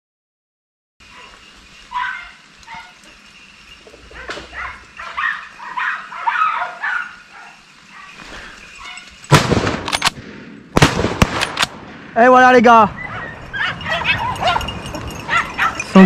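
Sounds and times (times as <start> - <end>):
dogs barking and yelping: 1.0 - 9.3, 12.9 - 16.0.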